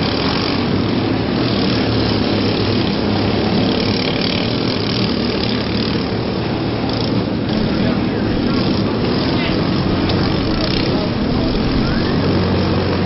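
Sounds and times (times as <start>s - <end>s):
several car engines running: 0.0s - 13.0s.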